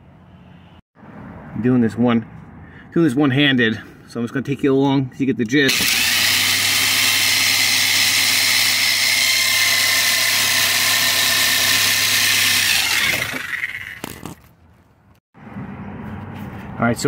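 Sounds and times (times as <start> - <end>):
reciprocating saw cutting metal bolt: 5.7 - 14.2.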